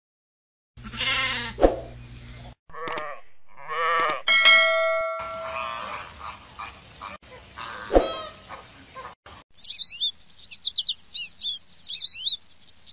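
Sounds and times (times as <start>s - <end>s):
mixed bird calls: 5.2s - 12.9s
sparrow chirping: 9.6s - 12.9s.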